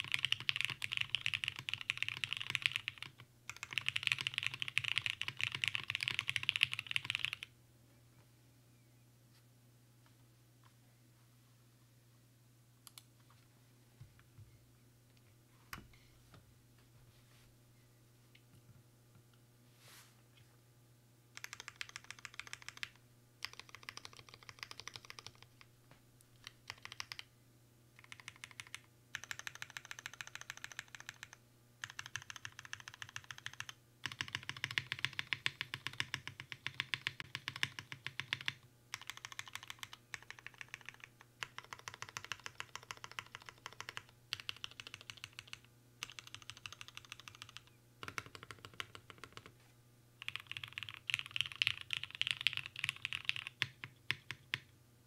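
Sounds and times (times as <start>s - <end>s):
typing on mechanical keyboard: 0.0s - 7.5s, 21.4s - 25.6s, 26.4s - 27.3s, 28.0s - 49.5s, 50.2s - 54.7s.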